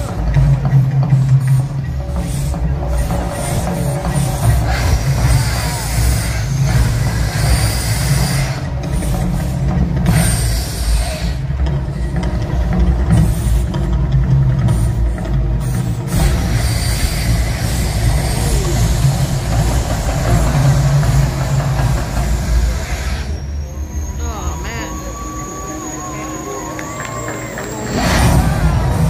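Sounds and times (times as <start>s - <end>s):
gas fire jets bursting: 0.0s - 11.6s, 14.6s - 23.9s, 27.1s - 29.0s
deep steady rumble: 0.0s - 29.0s.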